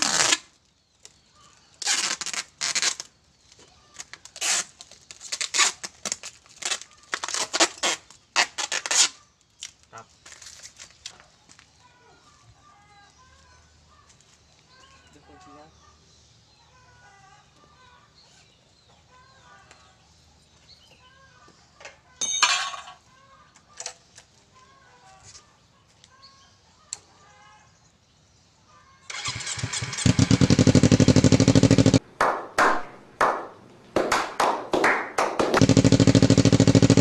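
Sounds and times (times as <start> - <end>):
motorcycle engine starting and revving: 29.1 - 32.0, 35.5 - 37.0.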